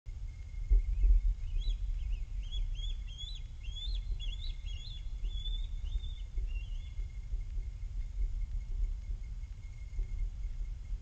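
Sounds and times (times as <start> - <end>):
low rumble: 0.1 - 11.0
eagle high chirping calls: 0.8 - 7.1.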